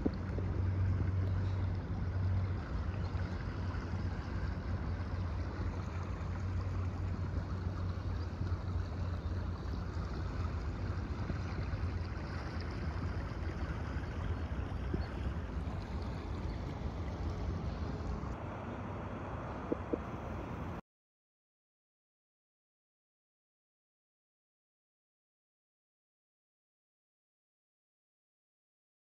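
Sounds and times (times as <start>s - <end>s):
floodwater rushing: 0.0s - 20.8s.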